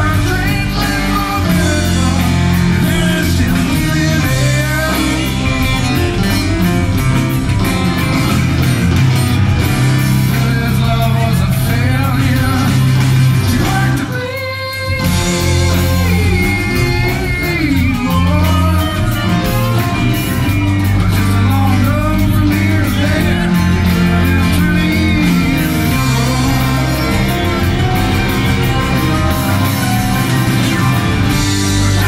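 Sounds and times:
live rock band playing: 0.0s - 32.0s.

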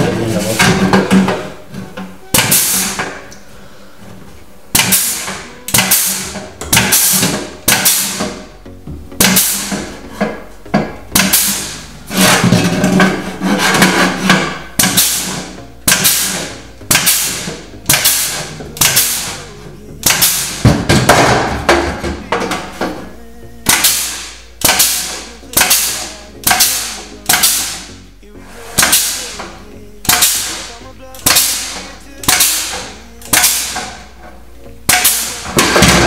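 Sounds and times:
pneumatic punch hitting steel: 2.3s - 3.2s, 4.7s - 8.5s, 9.2s - 19.4s, 20.0s - 23.0s, 23.6s - 27.9s, 28.8s - 34.0s, 34.9s - 36.0s.

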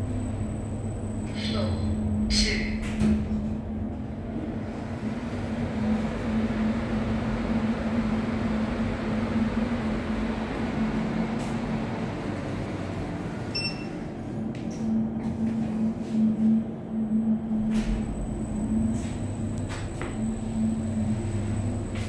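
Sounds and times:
lift mechanical hum: 0.0s - 22.0s
lift doors sliding open: 17.4s - 22.0s.

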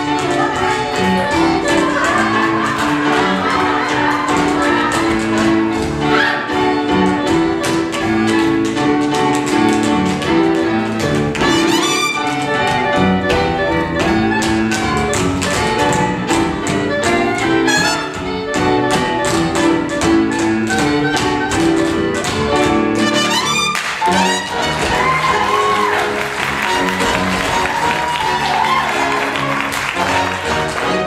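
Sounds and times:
tap shoes striking stage: 0.0s - 31.0s.

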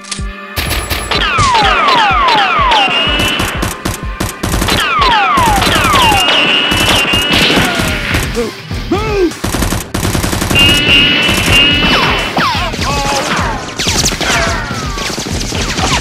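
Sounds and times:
automatic gunfire: 0.6s - 8.0s, 9.4s - 12.4s.

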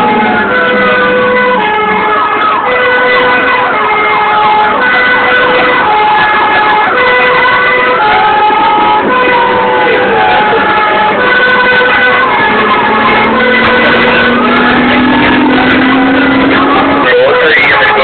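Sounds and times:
two-tone siren: 0.0s - 18.0s
wailing siren: 0.0s - 18.0s
siren falling sweeps: 7.8s - 18.0s.

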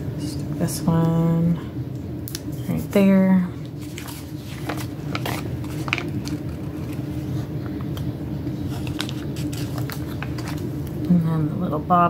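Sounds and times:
steady low hum: 0.0s - 12.0s
paper stickers rustling: 3.8s - 8.0s, 8.6s - 11.0s.

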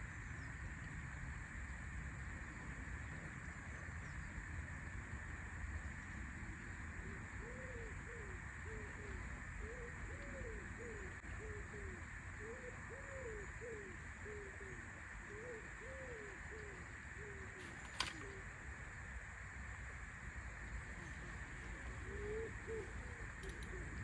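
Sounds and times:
pigeon cooing: 7.4s - 18.5s, 21.7s - 24.0s
sharp click: 17.6s - 18.4s.

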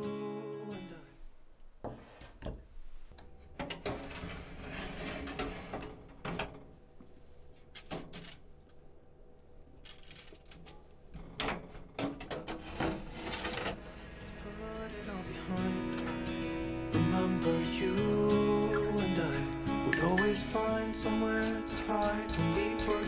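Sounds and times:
faint steady hum: 5.7s - 12.0s.

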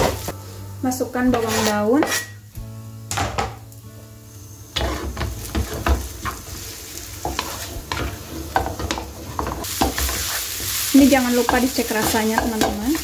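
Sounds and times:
food sizzling: 0.0s - 13.0s
spatula scraping frying pan: 1.2s - 2.4s, 4.8s - 13.0s.

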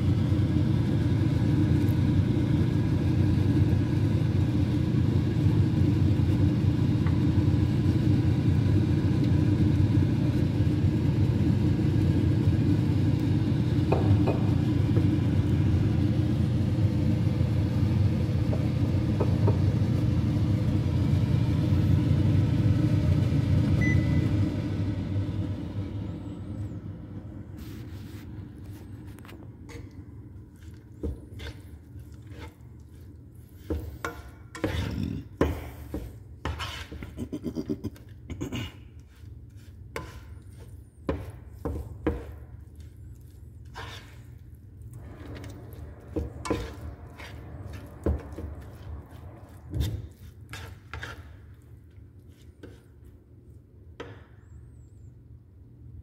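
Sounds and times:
steady low hum: 0.0s - 56.0s
spatula scraping a frying pan: 31.3s - 37.6s, 39.5s - 40.9s, 43.6s - 44.5s, 45.2s - 52.9s.

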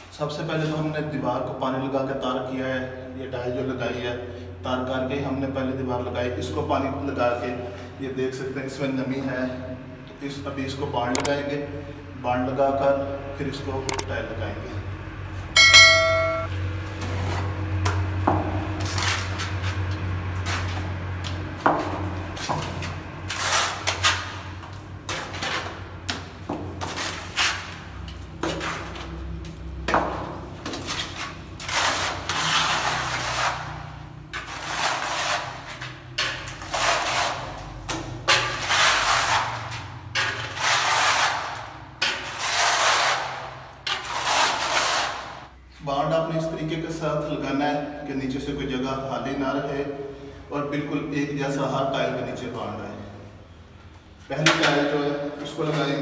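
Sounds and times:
trowel scraping adhesive: 36.6s - 37.5s, 40.2s - 45.3s.

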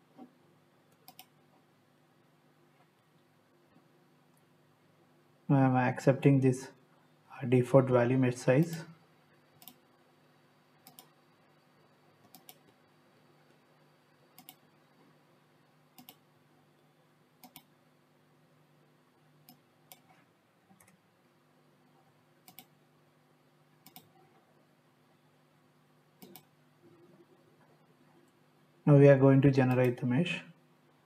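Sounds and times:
faint steady hum: 0.0s - 31.0s
computer mouse clicks: 0.9s - 1.4s, 9.6s - 9.8s, 10.8s - 11.2s, 12.2s - 12.8s, 14.3s - 14.7s, 16.0s - 16.2s, 17.4s - 17.7s, 19.4s - 21.0s, 22.4s - 22.8s, 23.8s - 24.2s, 26.2s - 26.5s.

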